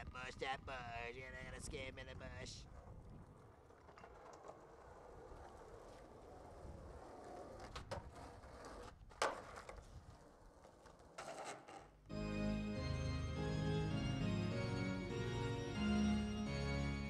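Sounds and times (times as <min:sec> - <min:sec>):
skateboard wheels rolling on asphalt: 0:02.2 - 0:13.2
skateboard clacking on ground: 0:02.7 - 0:12.0
skateboard clicks: 0:02.7 - 0:12.0.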